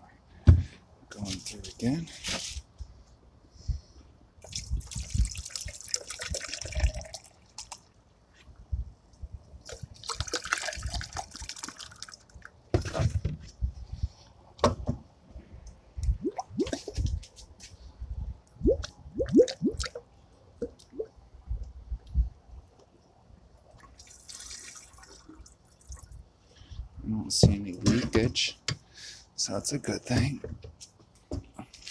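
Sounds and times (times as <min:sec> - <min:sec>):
liquid pouring and glugging: 0:04.4 - 0:07.8, 0:09.7 - 0:12.4, 0:16.1 - 0:17.1, 0:18.6 - 0:20.0, 0:23.8 - 0:26.1.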